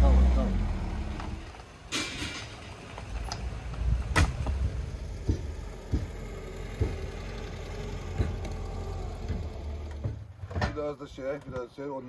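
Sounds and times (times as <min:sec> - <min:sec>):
car engine idling: 0:02.5 - 0:10.4
dull knocks: 0:04.2 - 0:07.4.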